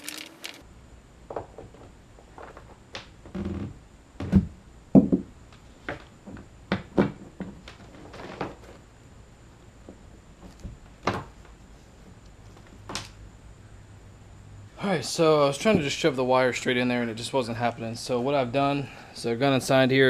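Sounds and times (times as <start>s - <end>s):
rustling: 0.0s - 0.6s.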